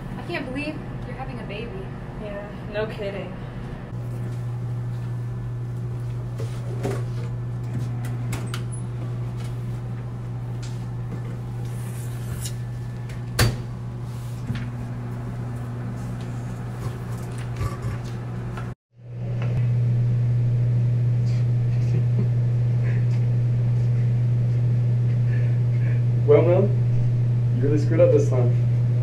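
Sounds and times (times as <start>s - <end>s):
steady low hum: 0.0s - 29.0s.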